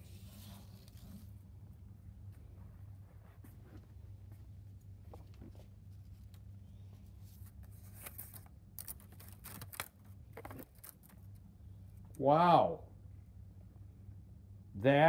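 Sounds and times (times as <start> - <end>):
low steady hum: 0.0 - 15.0
paper rustling: 5.2 - 11.4.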